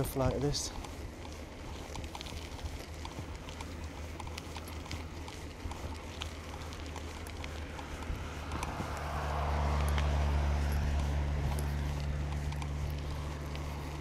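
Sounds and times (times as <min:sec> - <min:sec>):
bicycle rolling over dirt track: 0:00.0 - 0:14.0
small clicks and rattles: 0:00.0 - 0:14.0.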